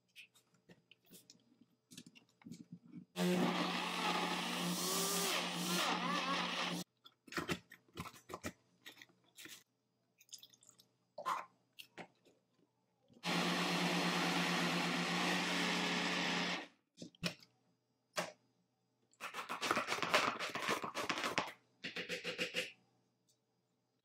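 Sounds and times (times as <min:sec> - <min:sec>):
blender motor chopping fruit: 0:03.2 - 0:06.8, 0:13.2 - 0:16.6.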